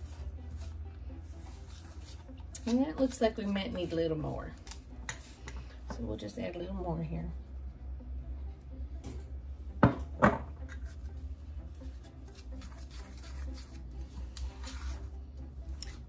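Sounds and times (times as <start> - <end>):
spoon scraping in metal bowl: 4.7 - 5.7, 10.6 - 11.1, 12.0 - 15.1.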